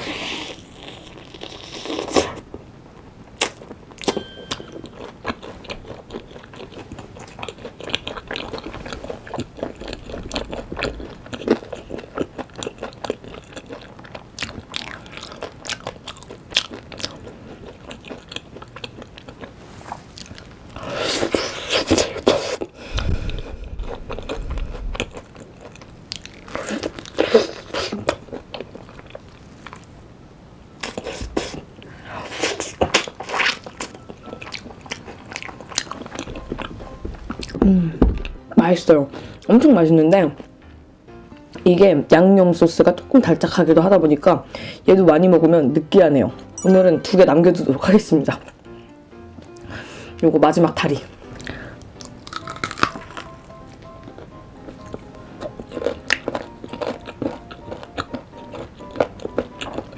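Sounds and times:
crunchy biting and wet chewing: 0:00.0 - 0:02.5, 0:04.8 - 0:29.9, 0:30.8 - 0:37.6, 0:51.2 - 0:59.9.

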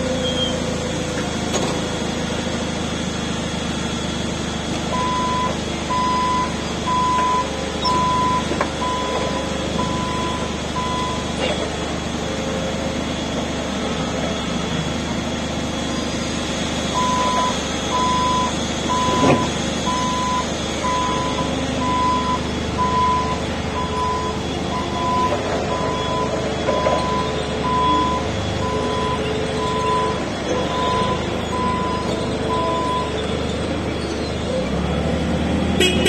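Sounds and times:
forklift warning beeps: 0:00.0 - 0:01.0, 0:04.9 - 0:12.4, 0:16.8 - 0:34.5
forklift running hum: 0:00.0 - 0:36.0.

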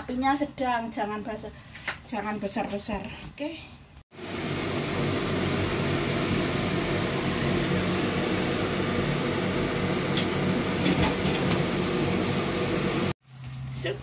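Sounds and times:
gas burner hissing: 0:04.1 - 0:13.2.

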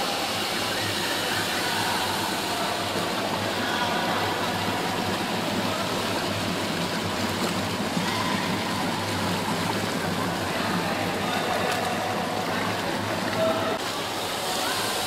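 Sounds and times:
water splashing and churning: 0:00.0 - 0:15.0.

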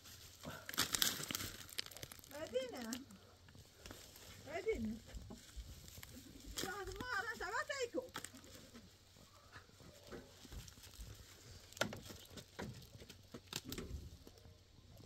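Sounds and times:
rustling of stones and debris: 0:00.0 - 0:15.0
stones knocking together: 0:00.7 - 0:02.9.

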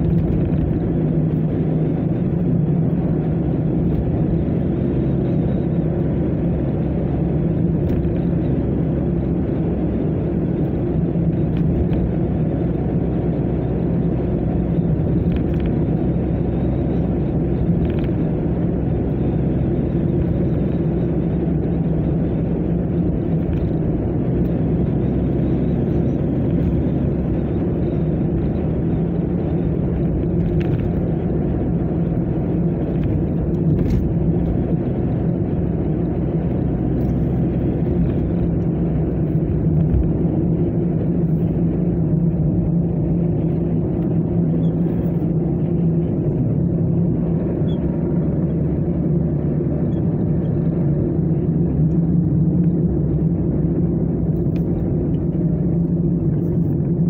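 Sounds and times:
car engine and tyre drone: 0:00.0 - 0:57.0.

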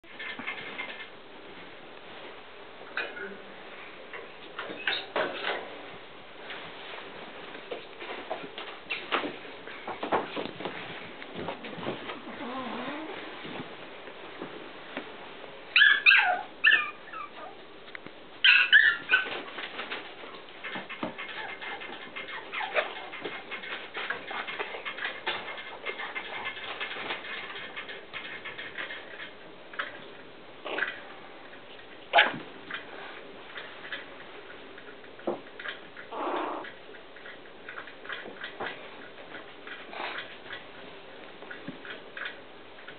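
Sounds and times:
puppies yipping: 0:15.7 - 0:17.6, 0:18.4 - 0:19.4.

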